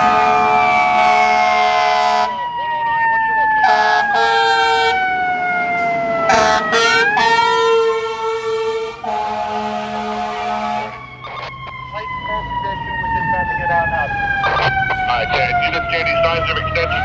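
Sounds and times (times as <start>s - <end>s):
fire engine air horn blasts: 0.0s - 2.6s, 3.6s - 5.0s, 5.8s - 11.0s
wailing siren: 0.0s - 17.0s.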